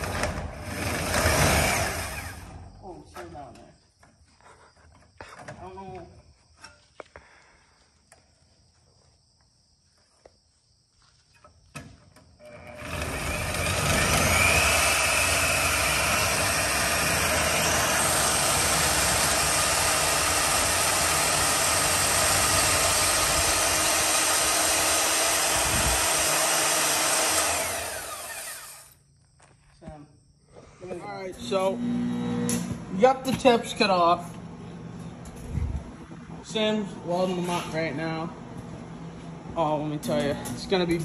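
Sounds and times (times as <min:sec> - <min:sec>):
bandsaw cutting metal pipe: 0:12.5 - 0:29.0.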